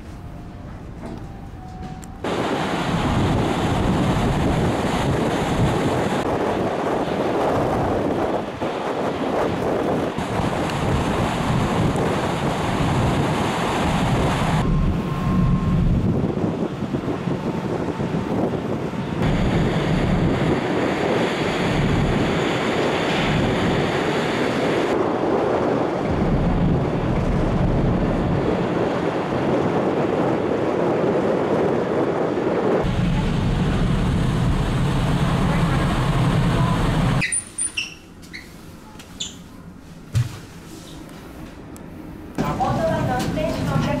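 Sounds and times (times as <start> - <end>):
wind buffeting microphone: 0.0 - 37.4.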